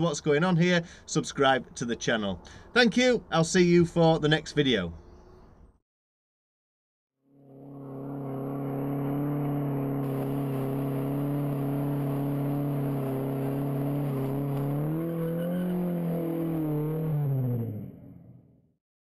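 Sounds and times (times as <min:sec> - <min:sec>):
car engine at high revs: 0:07.4 - 0:18.6.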